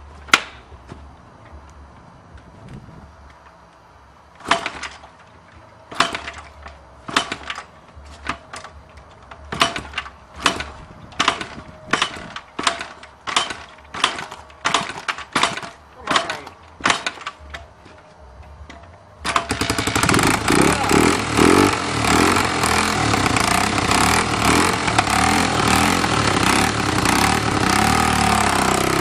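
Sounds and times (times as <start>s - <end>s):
motorcycle kick-starter clanking: 4.3s - 29.0s
engine turning over: 9.5s - 17.6s, 19.2s - 29.0s.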